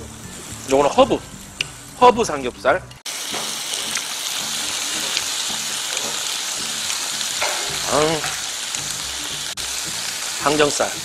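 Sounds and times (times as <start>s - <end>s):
meat sizzling on a griddle: 3.1s - 11.0s.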